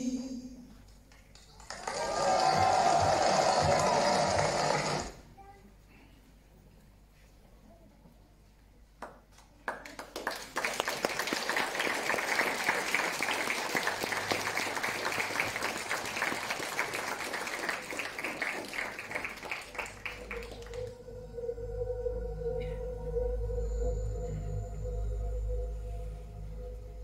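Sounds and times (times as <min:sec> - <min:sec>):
audience applause: 0:01.3 - 0:05.2, 0:09.7 - 0:21.0
low background music: 0:20.0 - 0:27.0.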